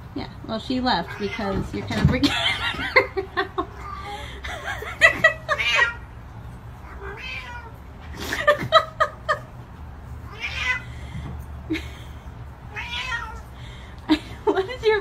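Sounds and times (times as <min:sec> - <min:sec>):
cat meowing: 0:06.8 - 0:07.8, 0:10.3 - 0:10.9, 0:12.7 - 0:13.5.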